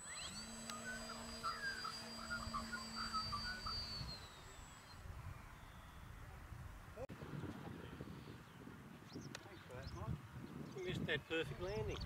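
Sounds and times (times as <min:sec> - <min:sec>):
model plane motor whining: 0:00.0 - 0:06.1.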